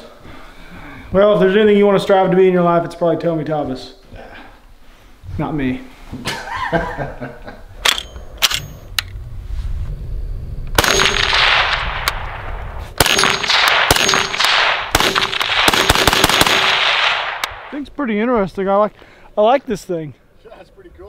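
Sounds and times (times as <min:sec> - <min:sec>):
sharp clicks: 0:07.8 - 0:09.2
gunshots with echo: 0:10.8 - 0:17.8.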